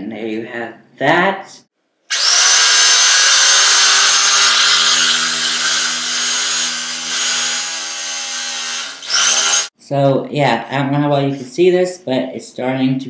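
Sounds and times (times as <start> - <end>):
electric carving knife cutting foam: 2.1 - 9.7.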